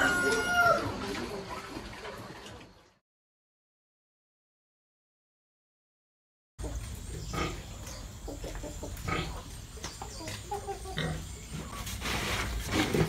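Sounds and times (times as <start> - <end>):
pigs grunting: 7.2 - 7.8, 9.0 - 9.5, 10.8 - 13.0.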